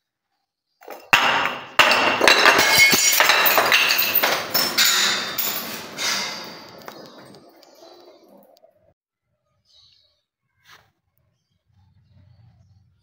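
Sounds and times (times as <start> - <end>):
glass shards and beads clattering: 0.8 - 7.5
glass bottles smashing on stairs: 0.8 - 7.6.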